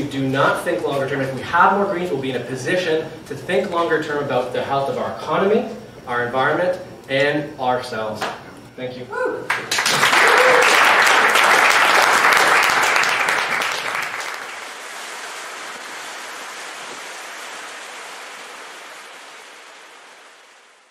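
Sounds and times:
audience applauding: 0:09.5 - 0:20.8
ocean surf: 0:14.3 - 0:20.9.

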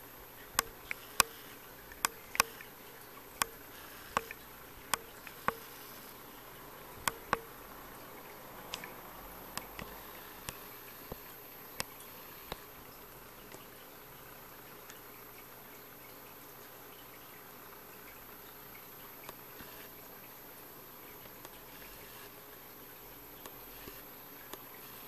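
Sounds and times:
aquarium hiss: 0:00.0 - 0:25.0
fish snapping clicks: 0:00.6 - 0:02.7, 0:03.4 - 0:05.7, 0:07.0 - 0:07.5.

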